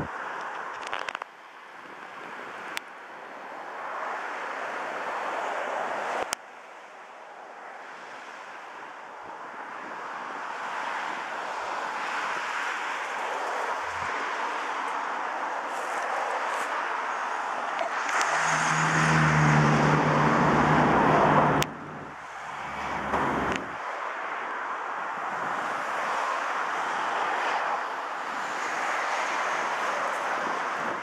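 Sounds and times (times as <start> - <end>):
rushing wind and road noise: 0.0 - 31.0.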